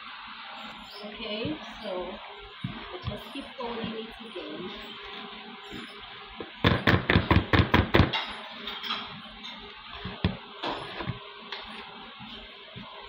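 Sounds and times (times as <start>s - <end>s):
spatula scraping bowl: 0.7s - 6.0s.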